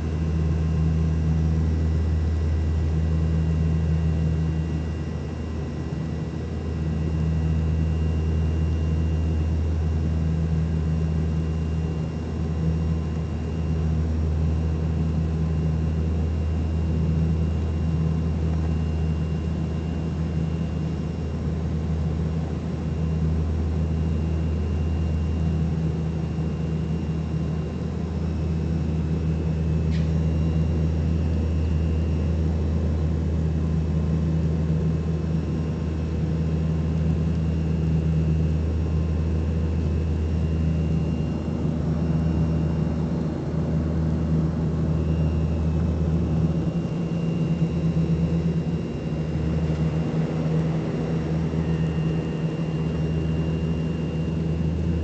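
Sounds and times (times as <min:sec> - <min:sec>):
faint steady whines: 0:00.0 - 0:55.0
turboprop engines droning: 0:00.0 - 0:55.0
short click: 0:29.9 - 0:30.2.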